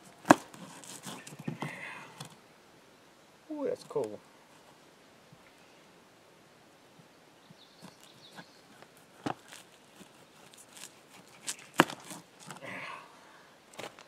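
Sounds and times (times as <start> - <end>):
brief rustle: 7.8 - 12.6.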